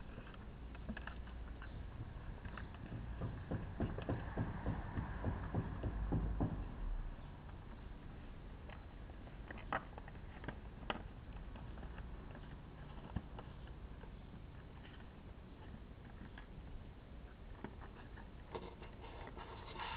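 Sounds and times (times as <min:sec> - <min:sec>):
faint low hum: 0:00.0 - 0:19.9
plastic plant pot knocking: 0:01.0 - 0:06.8.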